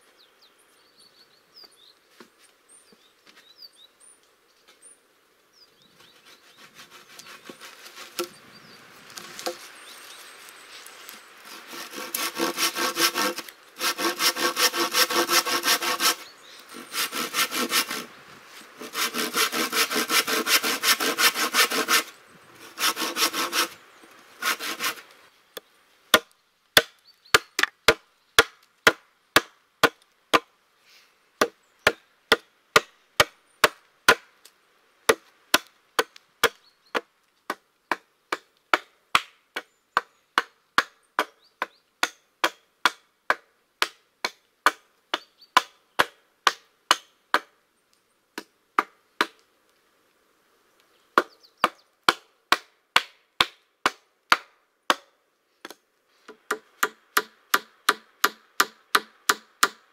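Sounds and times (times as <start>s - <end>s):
hatchet chopping wood: 26.1s - 30.5s, 35.1s - 47.5s, 51.2s - 59.8s.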